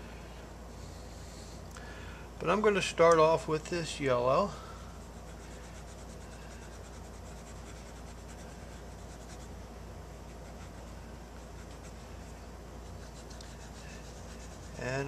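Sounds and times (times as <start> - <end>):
steady low hum: 0.0 - 15.0
cotton swab rubbing paint: 5.1 - 9.5, 10.3 - 15.0.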